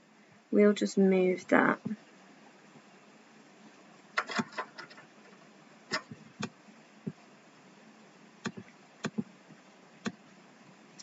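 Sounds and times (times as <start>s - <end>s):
computer mouse clicking: 8.4s - 9.3s.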